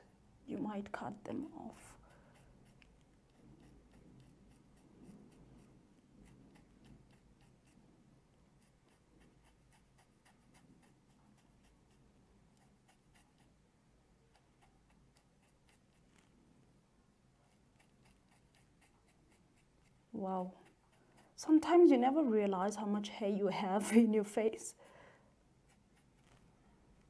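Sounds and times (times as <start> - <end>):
razor blade scratching skin: 1.4 - 13.6, 14.2 - 16.4, 17.4 - 22.2, 25.6 - 27.0.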